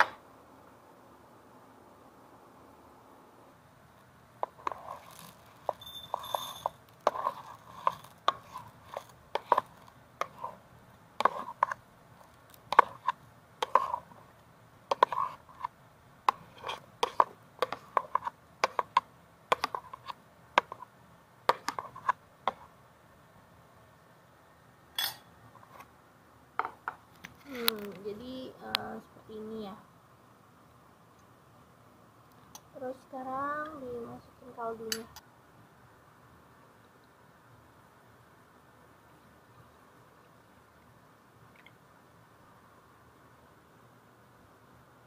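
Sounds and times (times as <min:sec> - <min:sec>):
metal spoon scraping and clinking: 0:04.5 - 0:10.4, 0:25.0 - 0:25.3.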